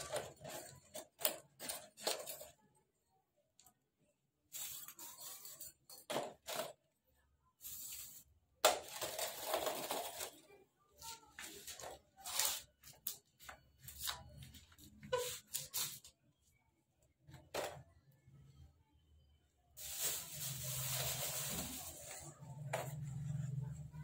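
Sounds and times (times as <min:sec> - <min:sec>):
plastic bags rustling: 0:19.8 - 0:22.5.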